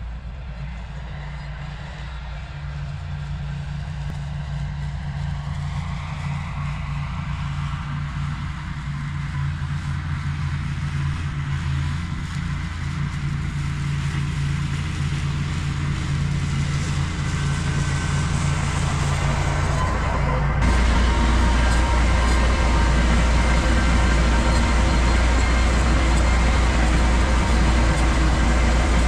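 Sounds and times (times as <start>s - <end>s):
tractor engine running: 7.1s - 29.0s
mower cutting grass: 9.6s - 29.0s.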